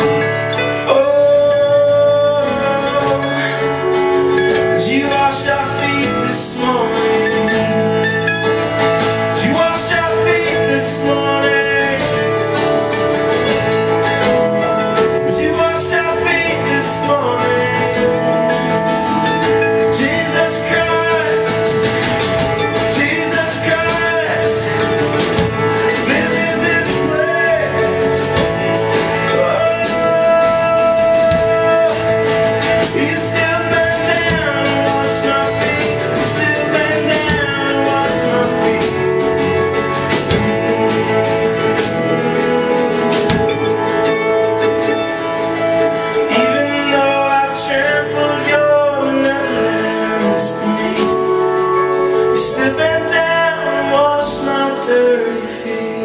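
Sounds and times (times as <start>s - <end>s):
man singing into a microphone: 0.0s - 43.8s, 46.2s - 56.0s
acoustic guitar strumming: 0.0s - 56.0s.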